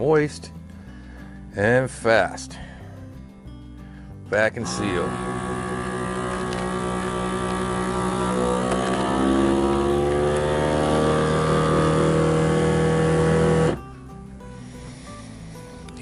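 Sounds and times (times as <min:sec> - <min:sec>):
vacuum sealer pump humming: 0:04.6 - 0:14.0.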